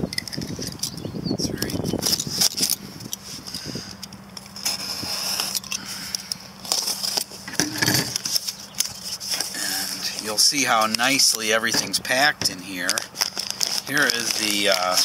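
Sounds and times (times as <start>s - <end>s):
utility knife cutting packing tape: 4.4s - 7.3s, 10.7s - 15.0s
cardboard flap crinkling: 4.4s - 15.0s
scraping strokes on cardboard: 4.6s - 5.6s.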